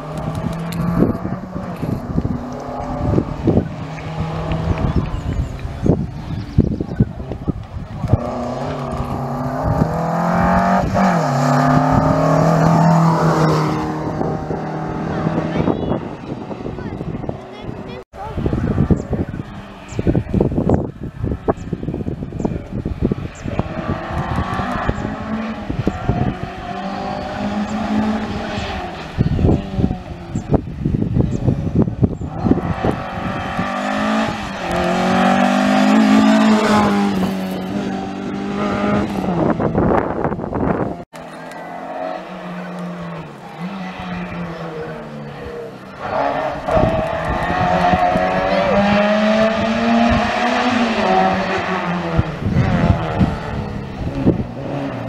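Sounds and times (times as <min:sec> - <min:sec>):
rally car engine passing by: 0:08.0 - 0:18.0, 0:31.7 - 0:55.0.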